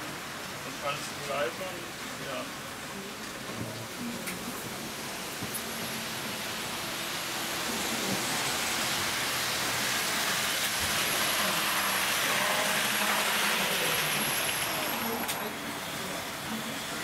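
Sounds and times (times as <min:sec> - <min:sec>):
model train wheels hissing on track: 0:04.3 - 0:17.0.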